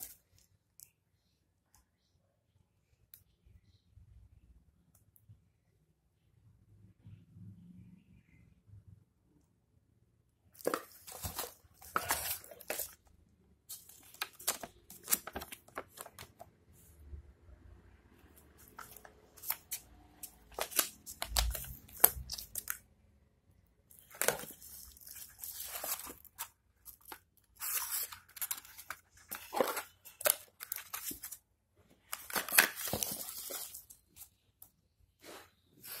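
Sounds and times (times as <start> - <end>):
plastic packaging crinkling: 10.6 - 13.1, 13.7 - 16.4, 18.6 - 22.8, 23.9 - 31.4, 32.0 - 34.3.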